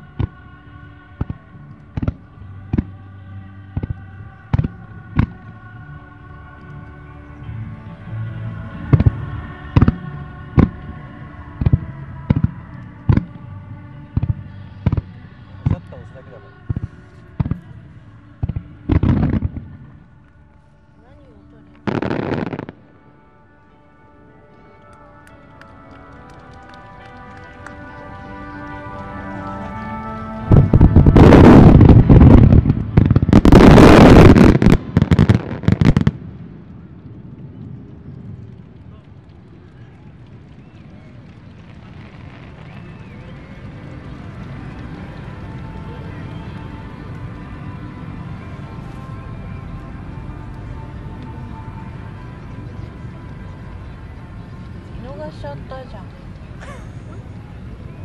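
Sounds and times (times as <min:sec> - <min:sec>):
fireworks banging: 0:27.0 - 0:47.2.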